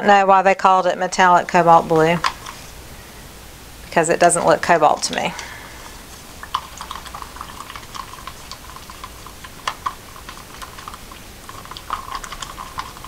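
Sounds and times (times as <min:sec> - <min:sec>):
stick stirring paint in a cup: 0:04.3 - 0:13.0.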